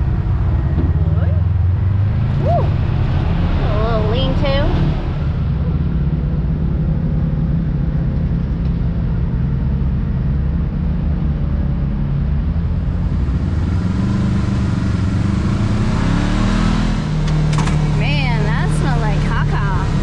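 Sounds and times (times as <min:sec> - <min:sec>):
vehicle engine droning: 0:00.0 - 0:20.0.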